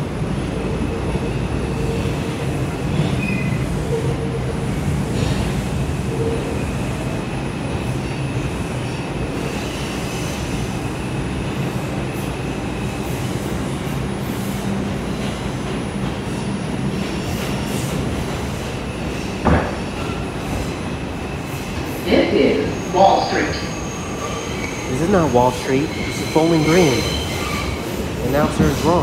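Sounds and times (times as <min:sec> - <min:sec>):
subway car rumble and motor hum: 0:00.0 - 0:29.0
high wheel squeal: 0:22.6 - 0:29.0.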